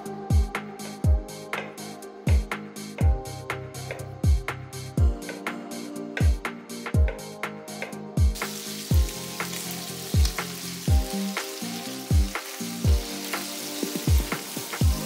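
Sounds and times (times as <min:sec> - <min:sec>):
music with thudding beat: 0:00.3 - 0:15.0
food sizzling in a pan: 0:08.4 - 0:15.0.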